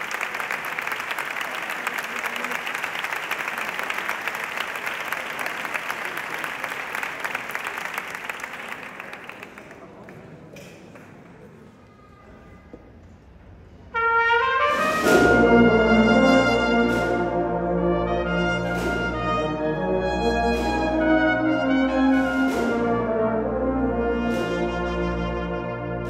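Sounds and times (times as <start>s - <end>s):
brass band playing: 13.9s - 26.0s
loud drum strokes: 13.9s - 26.0s.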